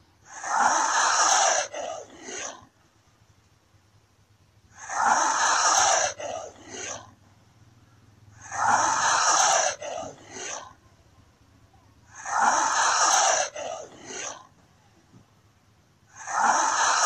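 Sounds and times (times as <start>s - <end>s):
lizard hissing: 4.7s - 7.1s, 8.4s - 10.7s, 12.1s - 14.5s, 16.1s - 17.0s.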